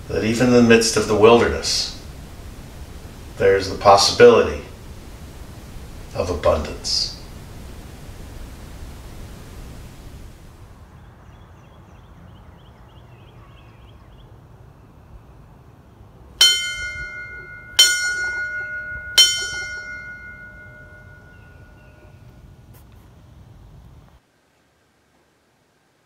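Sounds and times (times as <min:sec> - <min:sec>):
bell ringing: 0:16.4 - 0:22.2.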